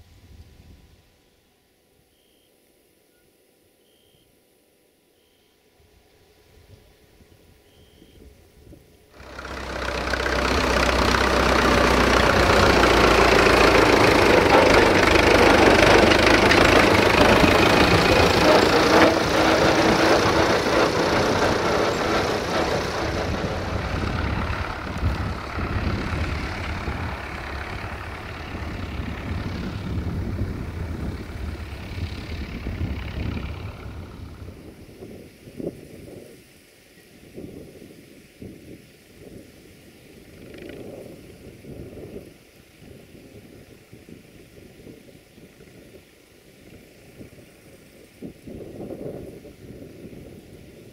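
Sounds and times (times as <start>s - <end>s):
locomotive diesel engine throbbing: 9.2s - 34.8s.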